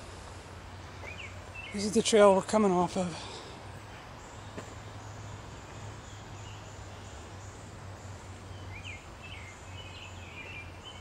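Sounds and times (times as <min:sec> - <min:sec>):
low hum and hiss: 0:00.0 - 0:11.0.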